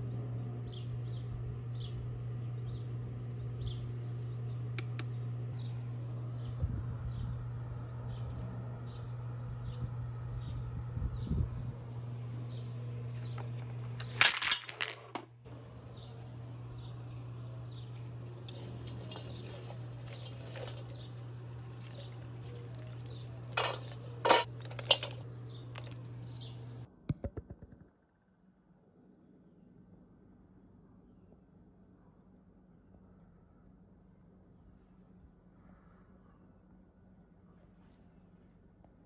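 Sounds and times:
steady low hum: 0.0 - 27.2
metal chunks clinking in pan: 18.5 - 26.1.

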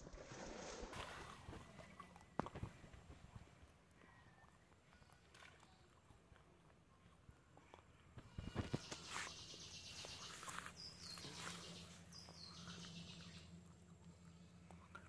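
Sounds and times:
water sloshing around wader: 0.0 - 3.8
bird calling: 8.5 - 13.5.

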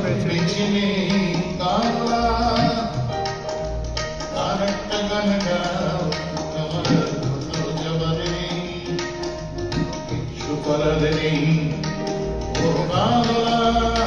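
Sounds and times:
guitar: 0.0 - 14.0
keyboard: 0.0 - 14.0
tabla drum strokes: 0.0 - 14.0
person singing: 10.2 - 14.0.

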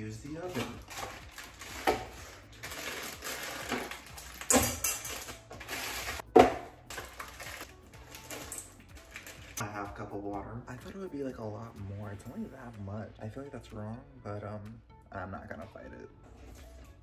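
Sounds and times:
plastic pouch crinkling: 0.5 - 6.2.

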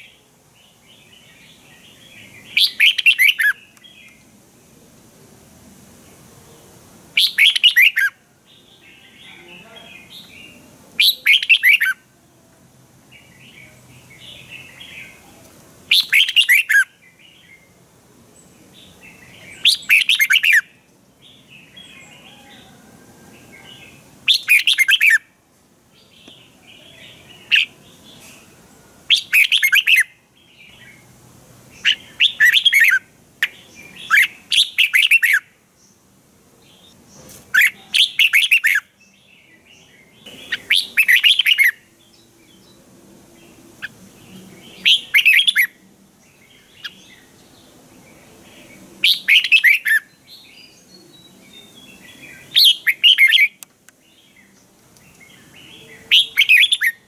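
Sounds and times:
bird warbling song: 0.0 - 4.2, 7.2 - 12.0, 15.9 - 17.8, 18.4 - 22.8, 23.4 - 25.2, 26.0 - 28.5, 29.1 - 31.1, 31.7 - 36.0, 36.6 - 57.0
soft bird chirps: 13.1 - 17.8, 36.6 - 57.0.

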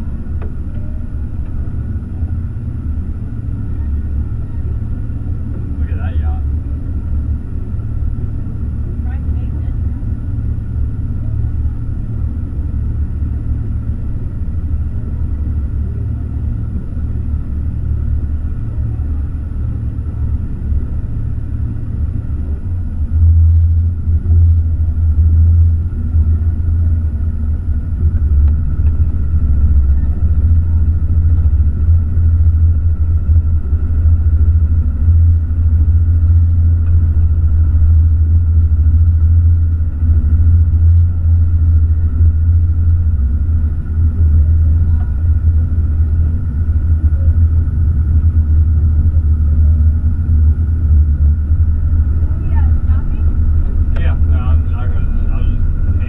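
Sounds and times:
motor boat engine rumbling: 0.0 - 56.0.

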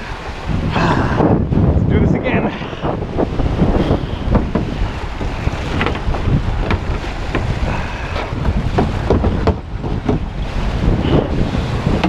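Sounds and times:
waves splashing against rocks: 0.0 - 12.0
wind buffeting microphone: 0.0 - 12.0.

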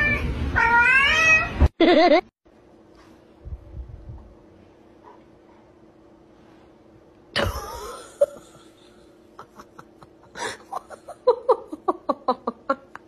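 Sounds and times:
person laughing: 1.8 - 2.3, 7.4 - 13.0.

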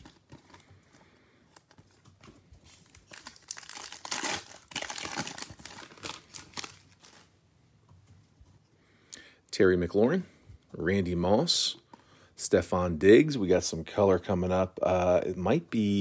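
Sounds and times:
foil pack crinkling: 0.0 - 7.3.

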